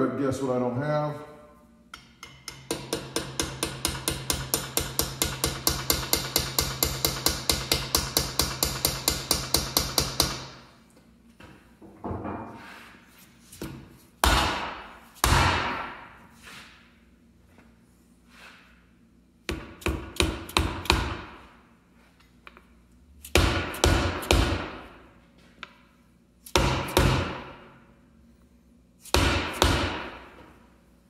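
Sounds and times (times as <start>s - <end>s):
hammer tapping steel punch: 1.9s - 10.6s.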